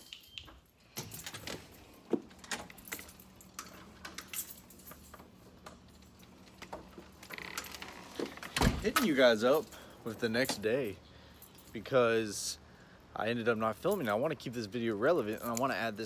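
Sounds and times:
door hardware clicks: 0.0s - 9.2s
keys jingling: 0.0s - 12.0s, 13.6s - 16.0s
faint steady hum: 0.7s - 16.0s.

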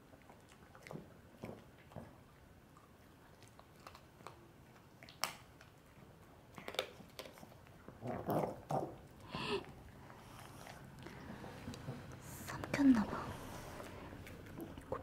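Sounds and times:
dog crunching a bone: 0.0s - 9.2s.

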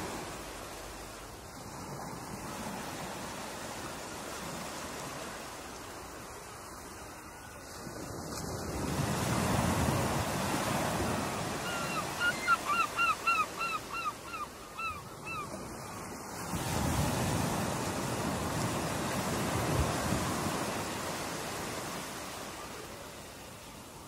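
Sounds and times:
ocean surf breaking: 7.8s - 13.9s, 15.5s - 23.6s
bird calling: 11.4s - 15.6s.

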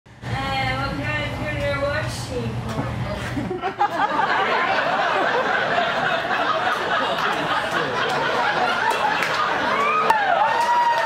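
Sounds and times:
audience laughing: 3.1s - 10.4s.

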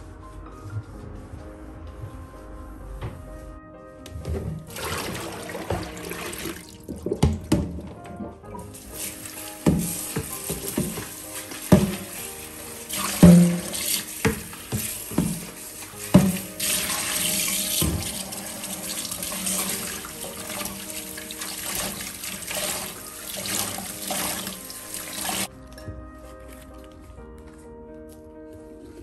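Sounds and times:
tap water running into sink: 4.3s - 25.5s
plastic basin knocking on sink: 7.0s - 8.0s, 11.7s - 12.1s, 16.1s - 16.5s.

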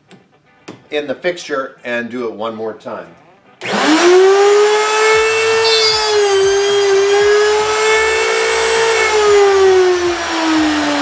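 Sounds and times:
router whining: 3.6s - 11.0s.

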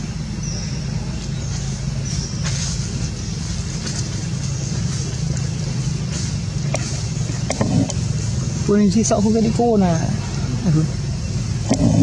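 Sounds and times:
low engine-like rumble: 0.0s - 12.0s.

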